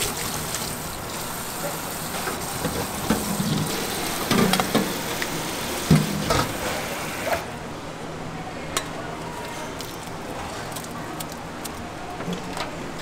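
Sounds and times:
water from faucet running: 0.0 - 7.4.

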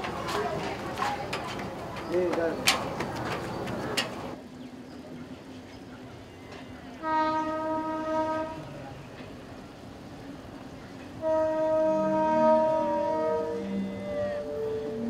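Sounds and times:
train horn: 6.9 - 8.8, 11.2 - 15.0.

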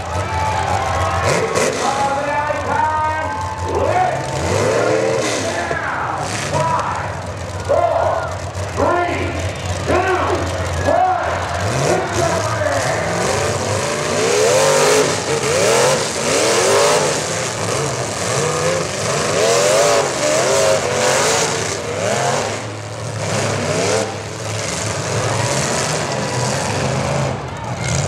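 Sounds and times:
car engines revving: 0.0 - 28.0
cars striking each other: 9.4 - 28.0.

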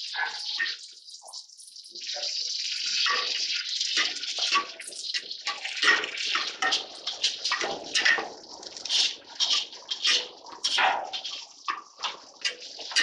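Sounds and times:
vegetables sizzling in hot oil: 0.0 - 13.0
metal ladle scraping pot: 5.4 - 13.0.

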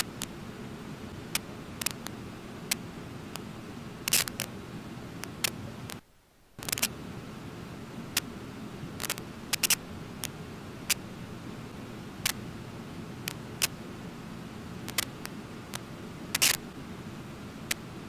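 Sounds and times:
camera shutters clicking: 9.0 - 9.8, 16.4 - 16.6.

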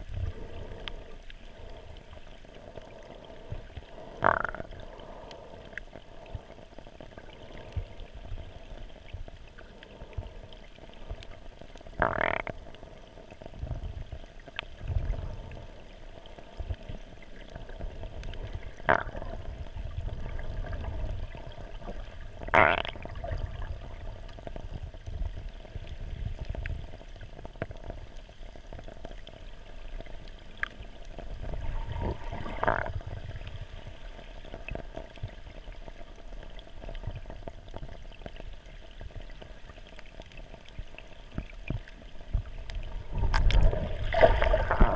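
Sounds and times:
muffled underwater rumble: 0.0 - 44.9
faint clicks: 0.3 - 19.8, 24.2 - 31.3.

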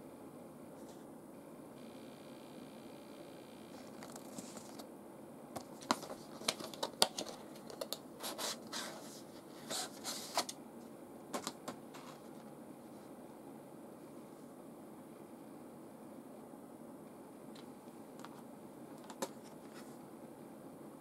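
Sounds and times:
paper and plastic rustling: 4.0 - 4.8, 5.6 - 10.5, 11.3 - 12.5
plastic packaging clicks and crackles: 5.6 - 8.0.

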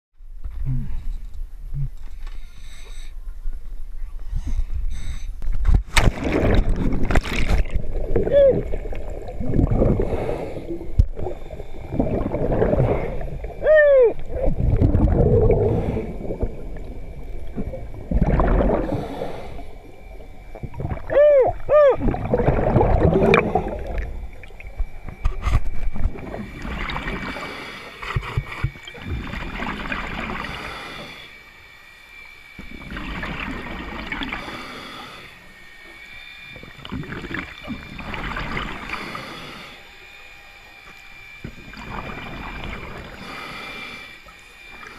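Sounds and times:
exhaled bubbles underwater: 6.0 - 31.2, 32.6 - 35.6, 36.5 - 39.7, 41.4 - 44.9
wavering whoop-like tone: 8.2 - 8.8, 13.6 - 14.6, 20.9 - 22.5.

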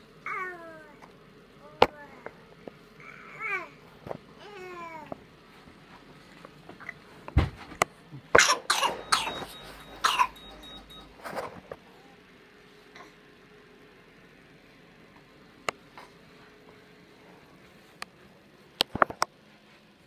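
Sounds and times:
baby crying: 3.0 - 3.8, 4.4 - 5.2
coughing: 8.2 - 10.9.

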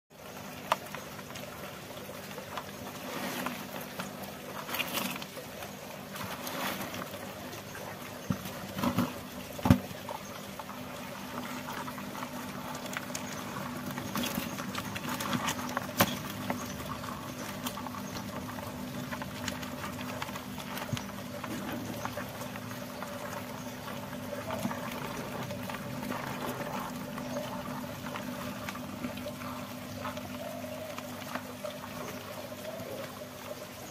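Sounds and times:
crayfish shells clicking and scraping: 0.2 - 33.9.

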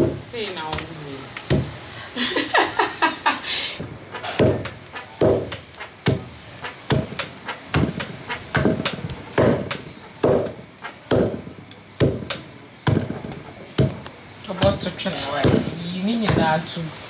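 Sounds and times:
wooden pestle pounding in mortar: 1.5 - 1.8, 4.3 - 14.0, 14.6 - 16.6.

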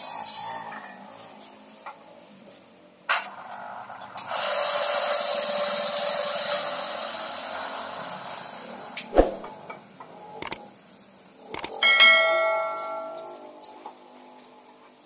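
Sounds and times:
coffee grinder motor grinding: 3.2 - 7.9.

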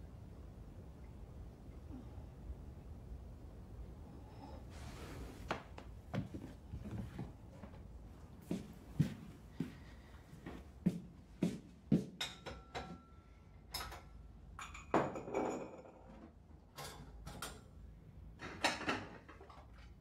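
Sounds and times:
soft footsteps: 4.8 - 12.2
dishes and pot clattering: 12.2 - 13.0, 13.7 - 16.2.

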